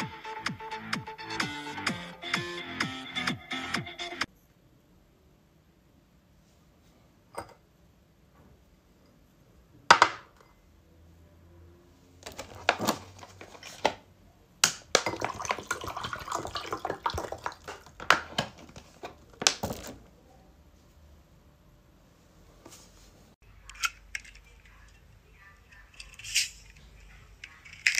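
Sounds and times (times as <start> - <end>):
glass clinking on table: 7.3 - 7.6
liquid pouring into glass: 15.0 - 17.9.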